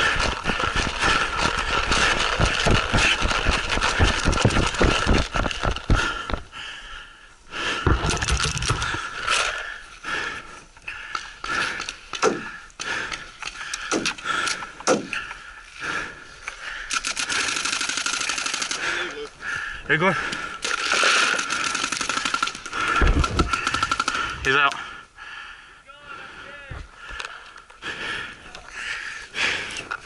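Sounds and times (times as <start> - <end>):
gear rattling and knocking: 0.0 - 6.0
sharp clicks: 16.5 - 19.2, 20.3 - 24.8.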